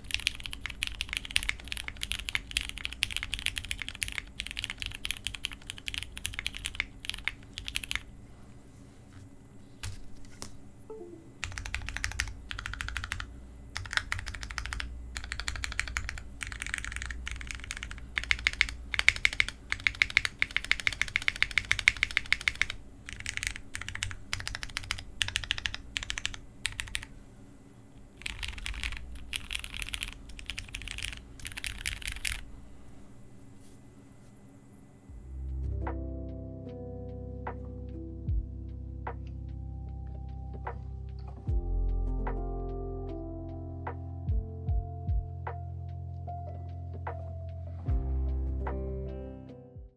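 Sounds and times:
mechanical keyboard typing: 0.0 - 8.1, 11.4 - 27.1, 28.2 - 32.4.

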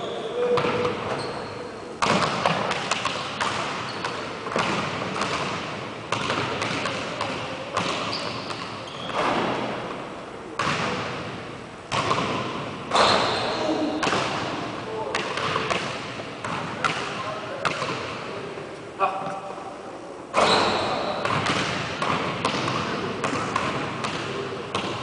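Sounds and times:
basketball bouncing on wooden floor: 20.4 - 25.0.

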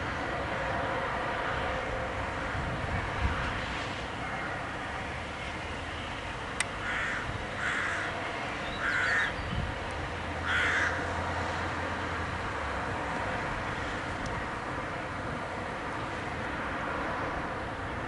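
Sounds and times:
crow cawing: 6.8 - 8.1, 8.8 - 9.4, 10.4 - 11.0.

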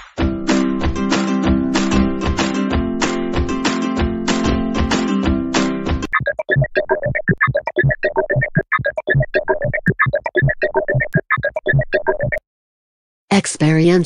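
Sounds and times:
synthesizer jingle staccato notes: 6.1 - 12.4.

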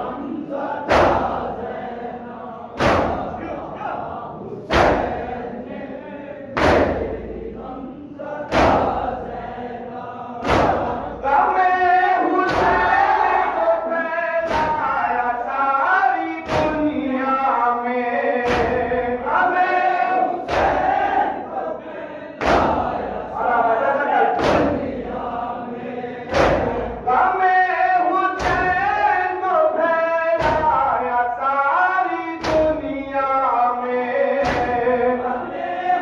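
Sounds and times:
men chanting a lament: 0.0 - 36.0
chest beating slaps: 0.8 - 1.7, 2.8 - 3.7, 4.7 - 5.4, 6.6 - 7.4, 8.5 - 9.2, 10.4 - 11.2, 12.4 - 13.6, 14.4 - 15.0, 16.4 - 17.0, 18.4 - 19.0, 22.4 - 23.0, 24.4 - 25.0, 26.3 - 27.0, 28.4 - 28.8, 30.4 - 30.9, 32.4 - 32.9, 34.4 - 34.9.

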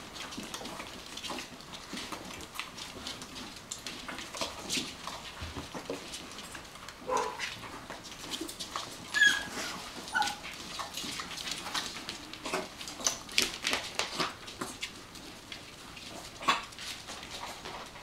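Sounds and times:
puppies whimpering and yipping: 9.0 - 10.8.

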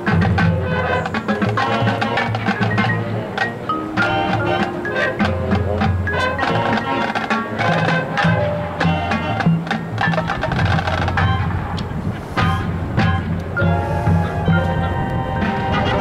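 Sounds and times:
rapid drum and percussion strikes: 0.0 - 14.7
brass chords: 0.0 - 16.0.

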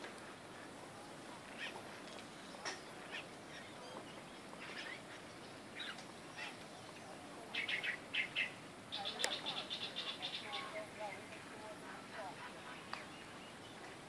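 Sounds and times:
faint outdoor hiss: 0.0 - 14.0
birds chirping: 0.6 - 14.0.

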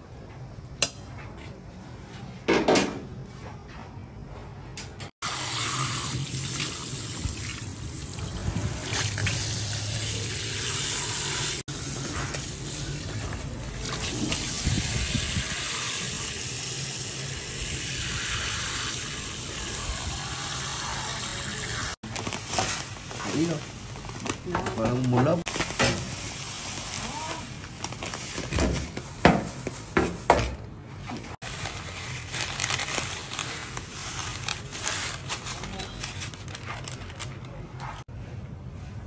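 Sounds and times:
water running from kitchen tap: 5.2 - 22.0.

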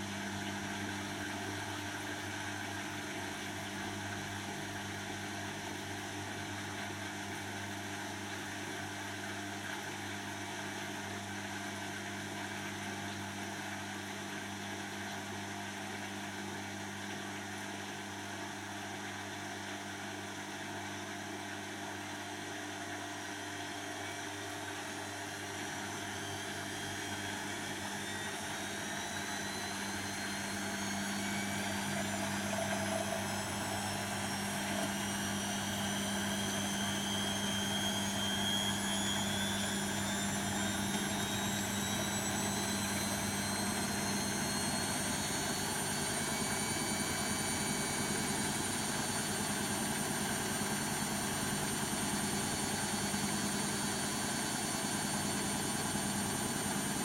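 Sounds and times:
washing machine motor hum: 0.0 - 57.0
rising spin whine: 26.0 - 48.0.

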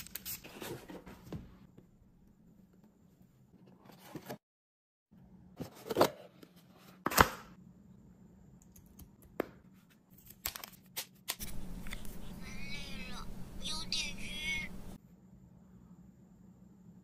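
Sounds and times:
cardboard rustling and scraping: 0.3 - 1.5.

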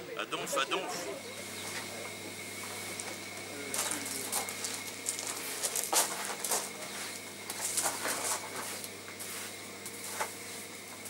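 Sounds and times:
rake scraping brick floor: 3.7 - 10.6.

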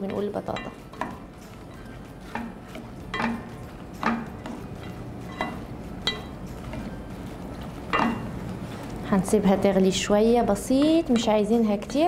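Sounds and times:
spoon stirring potatoes: 0.0 - 8.8
spoon knocking on pot: 2.3 - 4.5, 5.4 - 6.3.

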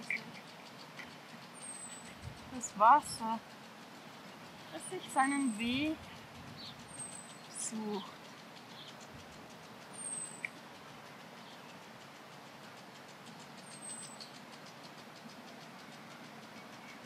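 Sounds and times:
faint background hiss: 0.0 - 17.0.

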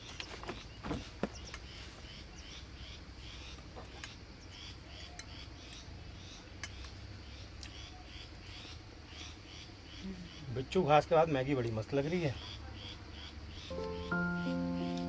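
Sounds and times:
bird chirping: 12.1 - 15.0.

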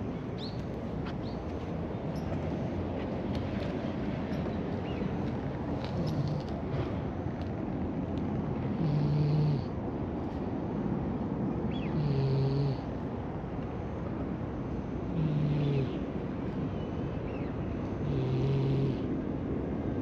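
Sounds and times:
cat snoring: 8.7 - 9.7, 11.9 - 12.9, 15.1 - 15.9, 18.0 - 19.1.

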